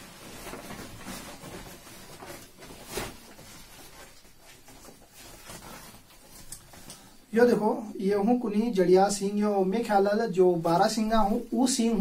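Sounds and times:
plastic sack rustling: 0.0s - 7.2s.

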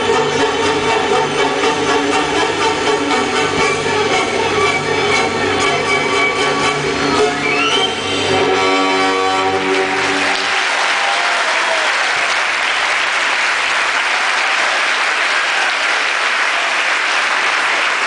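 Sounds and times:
orchestral music chord: 0.0s - 10.4s
audience applauding: 9.5s - 18.0s.

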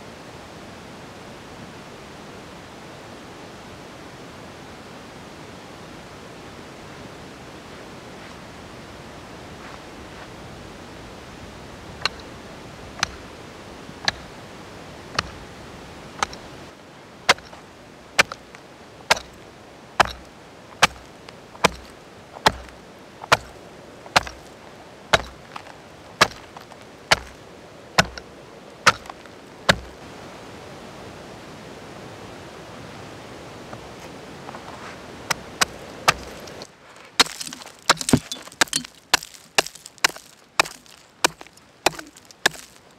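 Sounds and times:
faint steady hiss: 0.0s - 42.9s
hatchet chopping ice: 14.1s - 14.3s, 17.3s - 17.6s, 18.2s - 19.4s, 20.0s - 24.5s, 25.1s - 27.4s, 28.0s - 28.3s, 28.9s - 30.0s, 35.3s - 42.8s.

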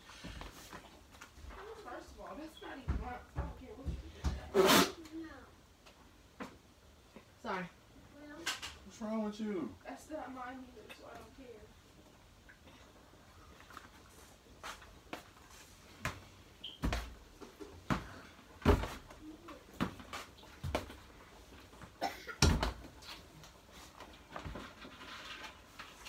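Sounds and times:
household knocks and clunks: 16.8s - 19.2s, 22.4s - 23.0s.

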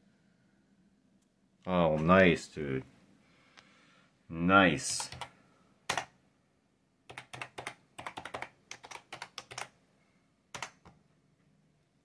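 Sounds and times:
typing on computer keyboard: 5.0s - 5.3s, 5.9s - 6.1s, 7.1s - 9.8s, 10.5s - 11.0s.

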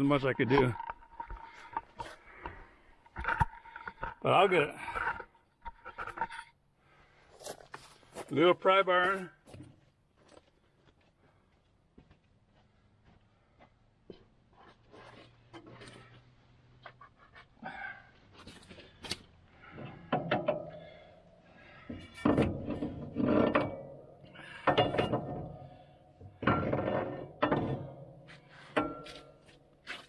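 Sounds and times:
metal clanks: 18.5s - 30.0s.

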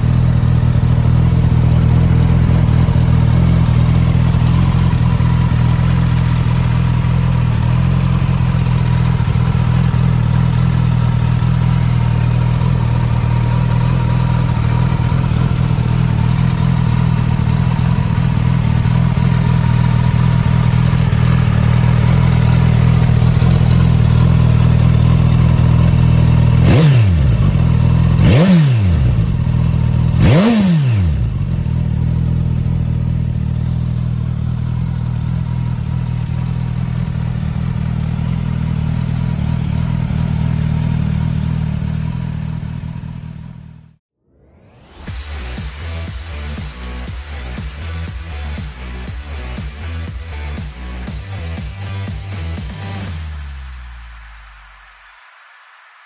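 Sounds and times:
motorcycle engine idling and revving: 0.0s - 55.3s.

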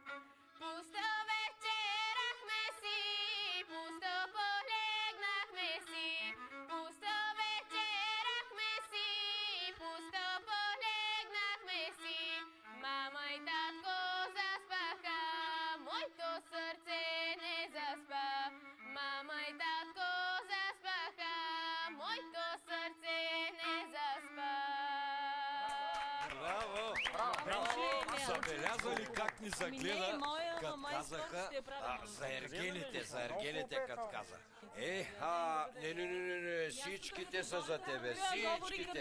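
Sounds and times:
girl singing folk song: 0.6s - 26.2s.

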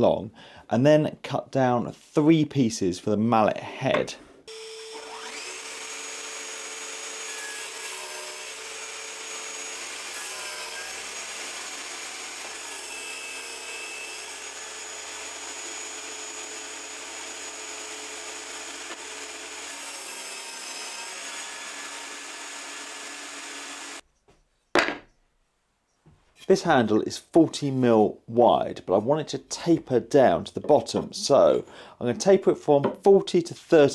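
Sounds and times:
table saw cutting wood: 4.5s - 24.0s.

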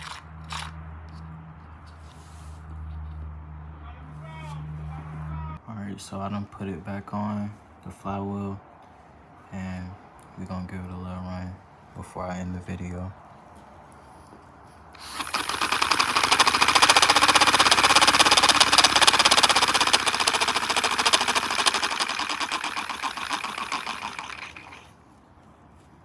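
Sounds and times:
model engine puffing and clicking: 15.0s - 24.9s.

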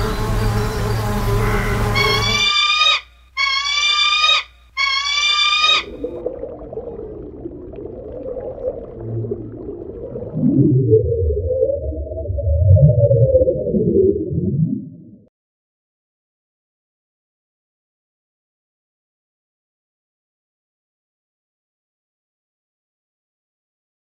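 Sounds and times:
loud low swooping calls: 0.0s - 6.2s
falcon crying: 1.4s - 6.1s
low rumble: 6.0s - 15.3s.

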